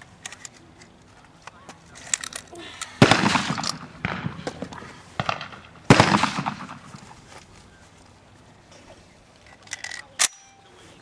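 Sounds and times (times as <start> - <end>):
loud shotgun shots: 3.0 - 4.6, 5.2 - 6.9.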